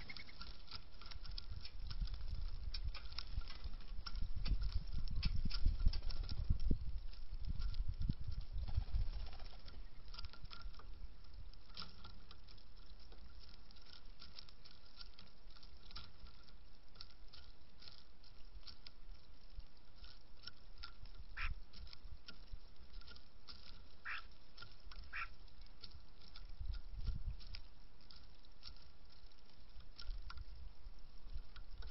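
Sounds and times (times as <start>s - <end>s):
birds pecking seeds on wood: 0.0s - 31.9s.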